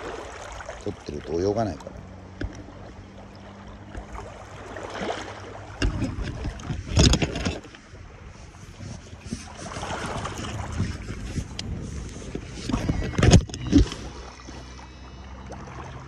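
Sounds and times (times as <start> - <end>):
small waves lapping on stones: 2.7 - 11.5
wind buffeting the microphone: 5.8 - 14.3.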